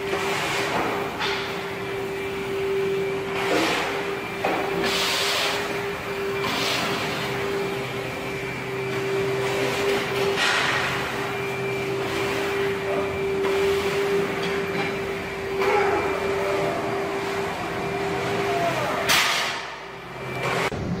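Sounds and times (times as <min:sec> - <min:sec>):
steady mechanical hum: 0:00.0 - 0:21.0
noisy rush: 0:20.5 - 0:21.0.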